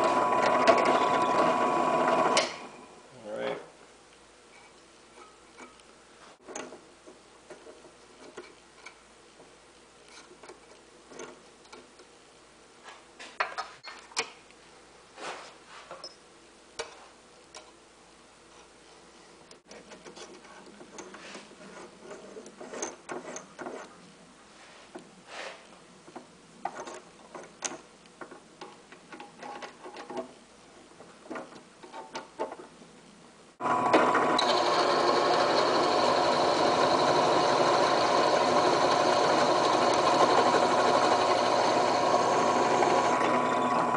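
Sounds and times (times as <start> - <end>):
drill press motor running: 0.0 - 2.9, 33.6 - 43.9
small metal clicks and taps: 16.8 - 17.8.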